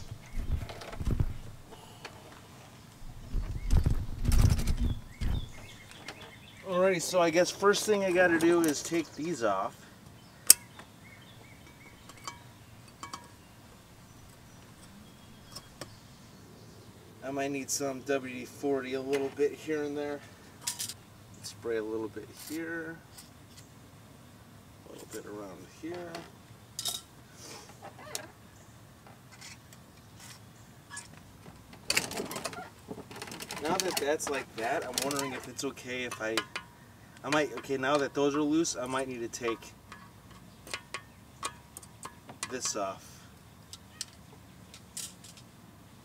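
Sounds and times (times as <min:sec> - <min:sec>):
metal tools clinking: 0:11.6 - 0:13.4, 0:20.6 - 0:21.0, 0:26.8 - 0:27.1, 0:33.1 - 0:36.7
small clicks and rubbing: 0:29.0 - 0:38.1.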